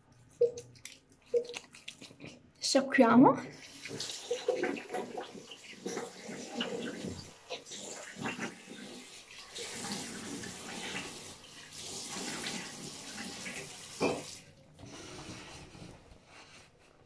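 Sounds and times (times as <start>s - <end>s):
tap water running into sink: 3.5s - 15.9s.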